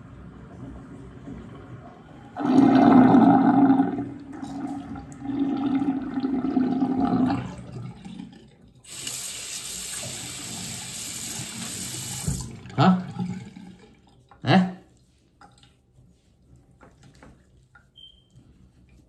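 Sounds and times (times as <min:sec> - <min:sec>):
water gurgling down sink drain: 0:00.0 - 0:14.8
faucet running: 0:02.2 - 0:13.9.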